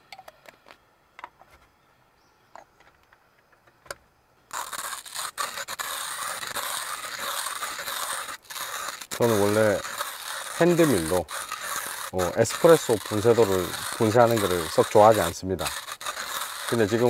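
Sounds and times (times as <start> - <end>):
hand coffee grinder grinding: 4.5 - 17.0.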